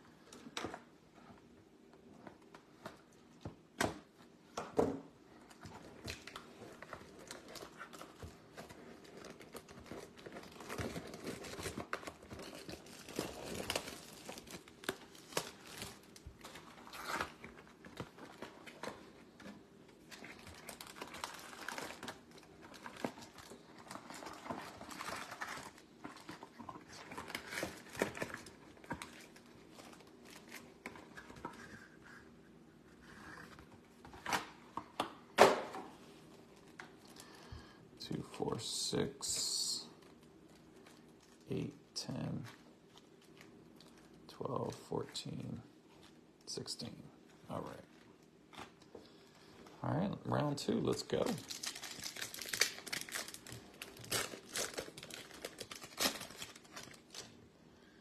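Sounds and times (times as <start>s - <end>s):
wrappers crinkling and tearing: 5.8s - 19.4s, 20.0s - 32.0s, 38.1s - 44.8s, 50.5s - 57.4s.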